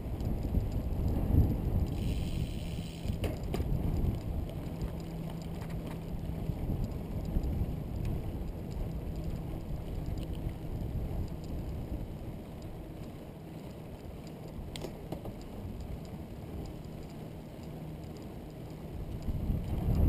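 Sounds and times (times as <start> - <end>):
wind rushing over microphone: 0.0 - 13.2, 18.8 - 20.0
tyres rolling on asphalt: 0.0 - 20.0.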